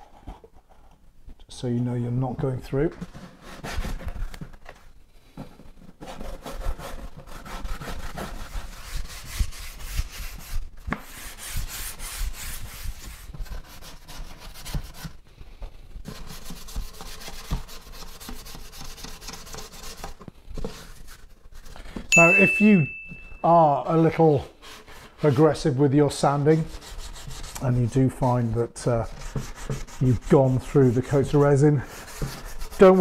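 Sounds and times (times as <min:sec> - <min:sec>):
hand sanding scratchy rubbing: 0:06.0 - 0:15.2, 0:16.0 - 0:21.8, 0:23.5 - 0:33.0.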